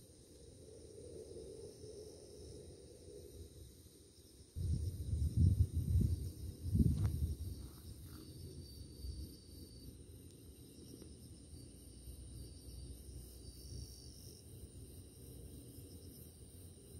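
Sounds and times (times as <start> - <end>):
crickets trilling: 0.0 - 16.9.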